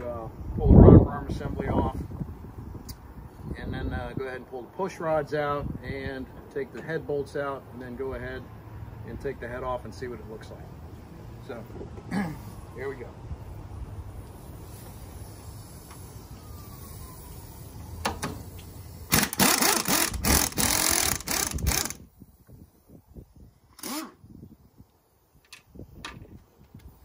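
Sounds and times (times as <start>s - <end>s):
impact wrench hammering: 19.1s - 22.0s.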